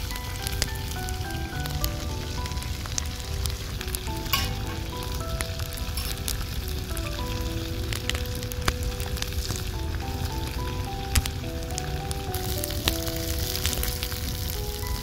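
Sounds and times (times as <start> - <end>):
soft instrumental melody: 0.0 - 15.0
vegetables sizzling in oil: 0.0 - 15.0.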